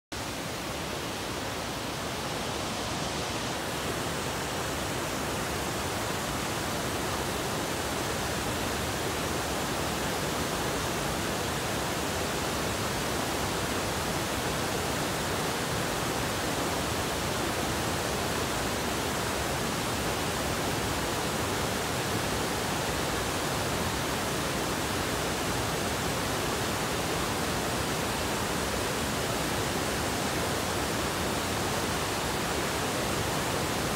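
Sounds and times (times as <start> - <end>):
river water rushing over stones: 0.2 - 33.9.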